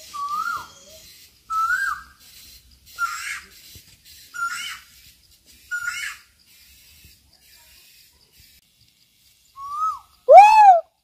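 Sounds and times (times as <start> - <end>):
short whistle-like call: 9.6 - 10.9.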